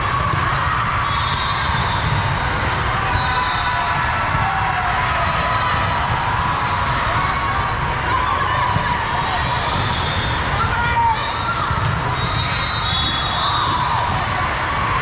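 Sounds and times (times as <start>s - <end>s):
crowd chatter: 0.0s - 15.0s.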